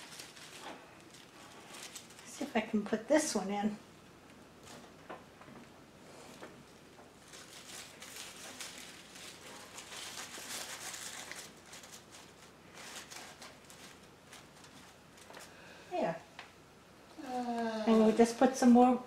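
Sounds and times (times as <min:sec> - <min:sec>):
artificial flowers rustling: 0:00.0 - 0:03.8, 0:06.0 - 0:16.4.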